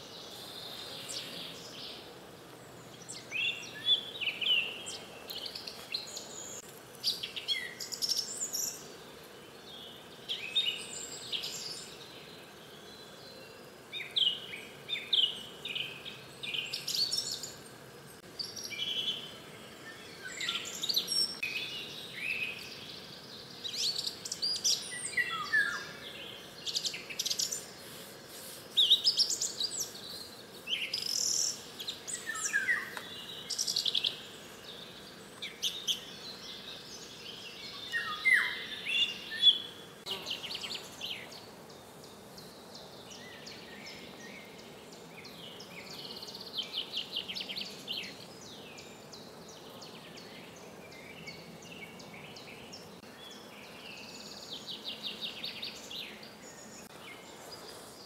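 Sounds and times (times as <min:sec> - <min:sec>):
songbirds singing trills: 0:00.0 - 0:58.0.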